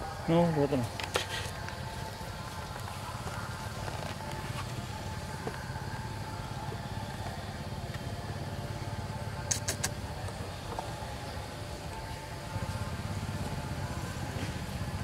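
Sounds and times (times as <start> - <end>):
vehicle engine humming: 0.0 - 15.0
short sharp clicks: 9.5 - 10.0.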